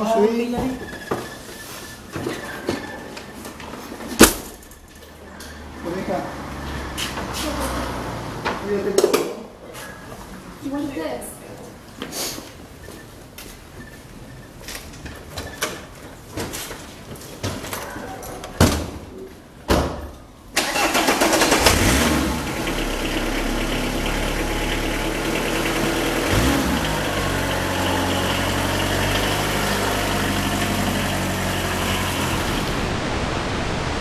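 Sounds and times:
van engine starting and idling: 20.4 - 32.8.

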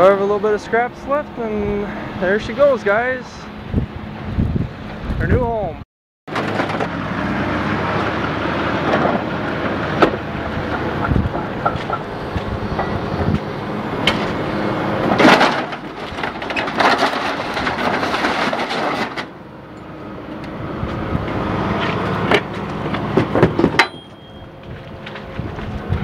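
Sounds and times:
grapple claw dragging a car body: 6.3 - 13.4, 14.0 - 19.4
sharp metal clanks: 23.6 - 24.5.

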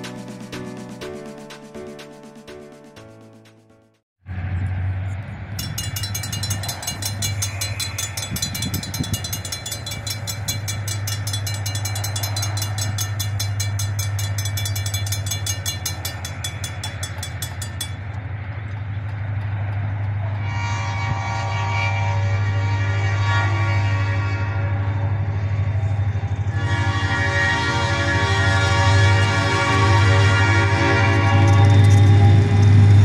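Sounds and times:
crossing bell ringing: 5.5 - 19.4
train horn: 19.2 - 33.0.

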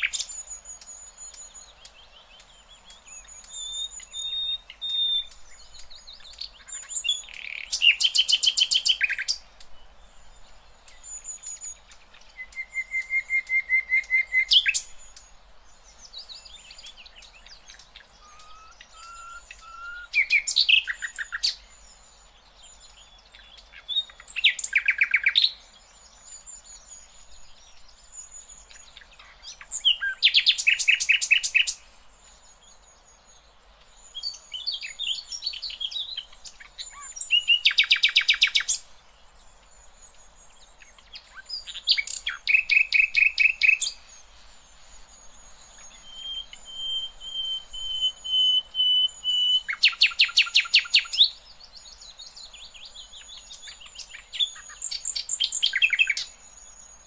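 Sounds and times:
nightingale singing: 0.0 - 57.0
soft thin bird whistles: 12.4 - 14.8, 18.2 - 21.5.

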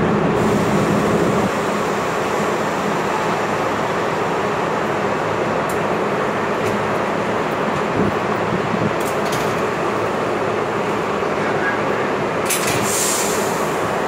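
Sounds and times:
train rumbling in station: 0.0 - 14.0
short hiss: 12.6 - 13.8.

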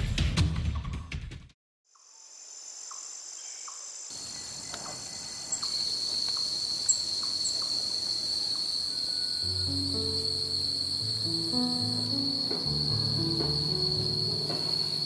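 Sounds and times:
high-pitched insect chorus: 1.9 - 15.0
lower insect tone: 1.9 - 15.0.

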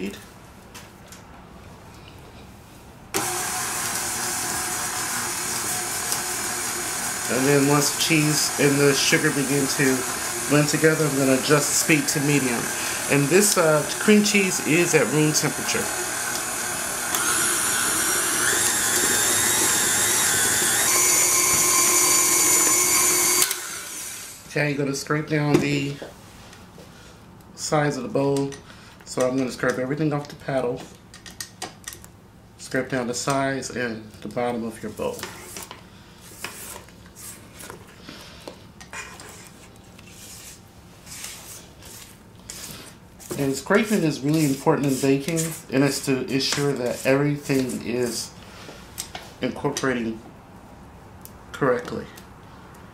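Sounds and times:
stand mixer motor whine: 3.2 - 24.4.

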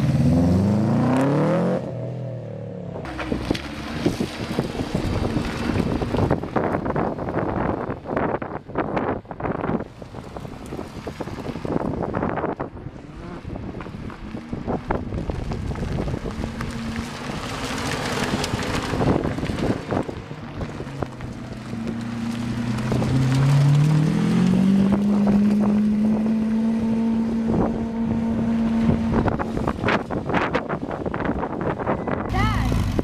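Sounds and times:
wind buffeting microphone: 2.9 - 33.0
sports car engines driving past: 9.4 - 33.0.

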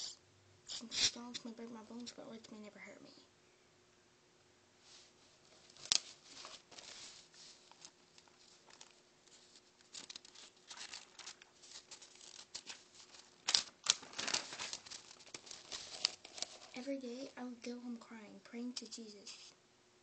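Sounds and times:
notebook page rustling: 4.9 - 17.3, 19.2 - 19.6.

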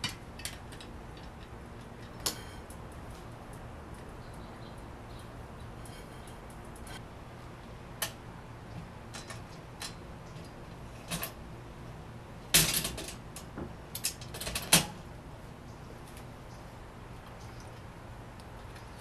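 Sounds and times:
metal parts clicking and clinking: 0.0 - 3.0, 12.5 - 13.2.

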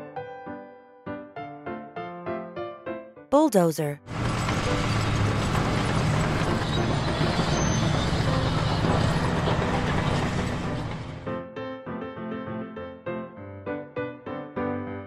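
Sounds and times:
bulldozer engine rumbling: 4.2 - 11.2.

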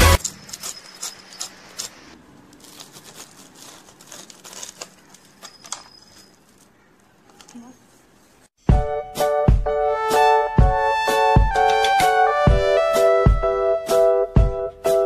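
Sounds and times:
pizza cutter crunching through crust: 0.0 - 6.8.

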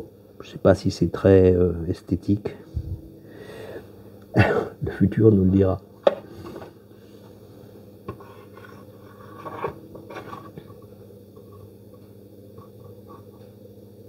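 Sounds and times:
potter's wheel humming: 0.0 - 14.0
wet rubbing on spinning clay: 8.1 - 10.8.

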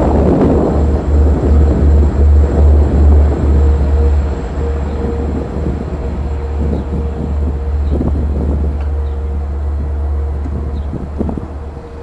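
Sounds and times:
railroad crossing bell dinging: 0.0 - 12.0
wind buffeting microphone: 0.0 - 12.0.

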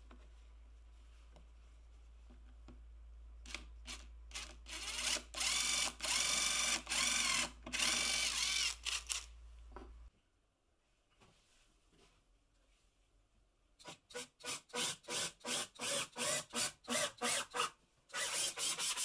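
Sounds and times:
electric drill boring into wood: 3.9 - 9.2, 14.7 - 19.0.

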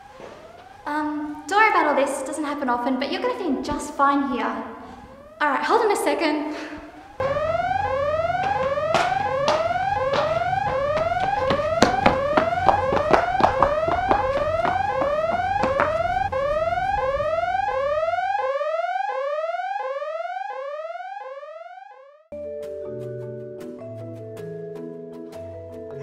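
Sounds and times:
whooping alarm siren: 0.0 - 22.3
sharp knocks: 8.2 - 16.4.

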